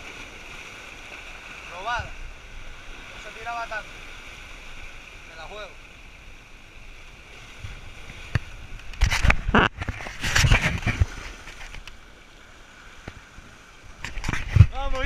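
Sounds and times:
sea water washing against rocks: 0.0s - 5.8s.

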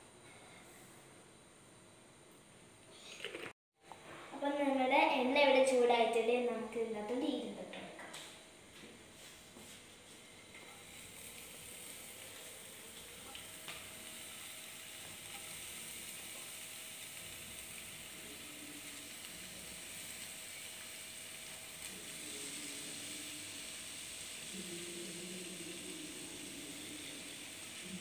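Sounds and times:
food sizzling in hot oil: 9.2s - 28.0s.

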